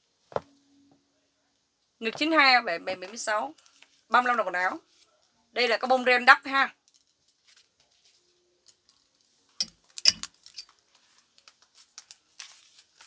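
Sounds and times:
beaded dress rustling: 6.8 - 13.0
clothes hangers clicking: 10.0 - 10.7.

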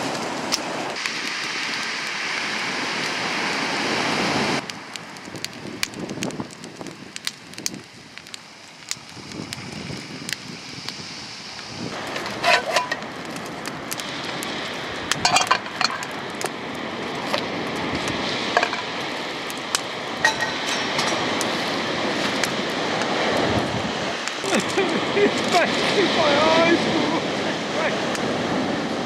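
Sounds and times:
wood fire: 0.0 - 29.0
wind rushing: 9.2 - 29.0.

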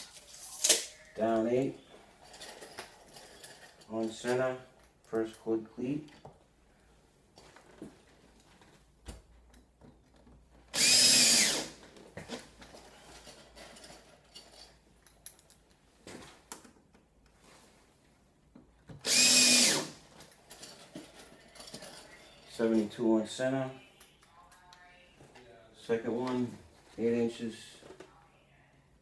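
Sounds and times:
cordless drill boring into wood: 10.7 - 11.8, 19.0 - 20.0.

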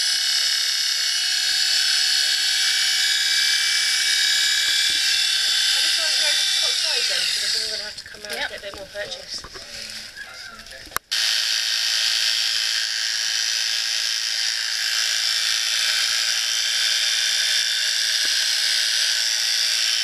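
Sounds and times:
small electric tool whirring: 0.0 - 20.0.

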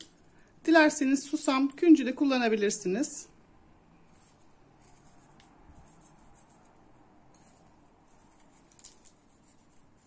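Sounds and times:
seeds pattering onto dough: 7.4 - 10.0.

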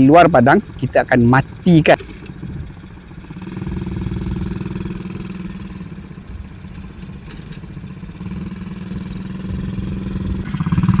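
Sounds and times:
quad bike engine running: 0.0 - 11.0.

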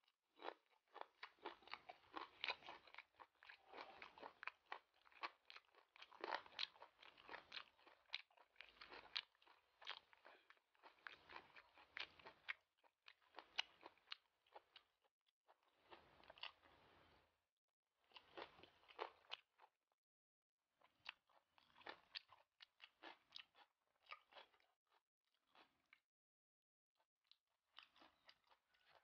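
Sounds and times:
crunchy chewing: 0.4 - 14.9, 15.6 - 17.2, 18.1 - 19.7, 20.8 - 24.7, 27.7 - 29.0.

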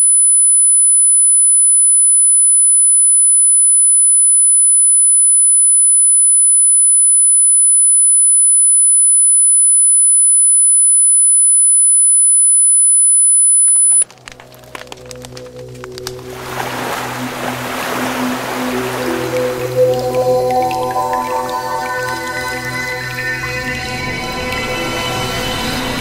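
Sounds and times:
high-pitched pure tone: 5.3 - 14.0, 18.3 - 26.0.

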